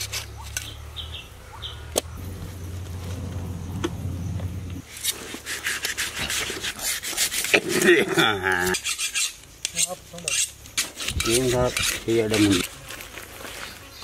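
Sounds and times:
knife scraping fish scales: 4.8s - 12.7s.

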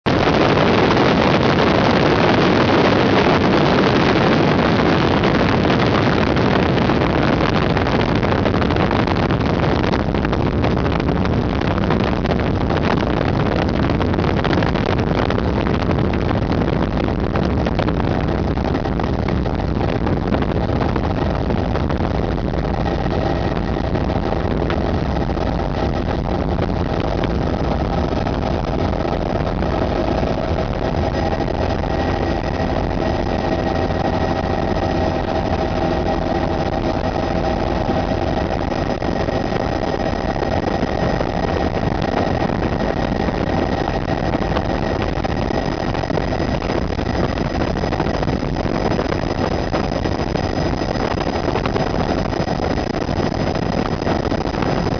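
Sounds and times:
helicopter turbine and rotor drone: 20.4s - 54.9s.

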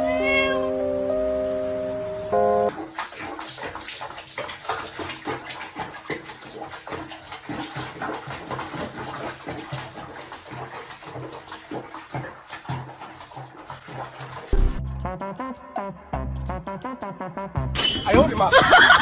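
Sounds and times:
water splashing in plastic basin: 2.7s - 14.8s.

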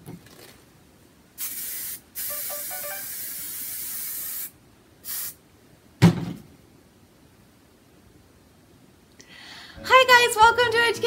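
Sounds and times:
aerosol spray hissing: 1.4s - 5.4s.

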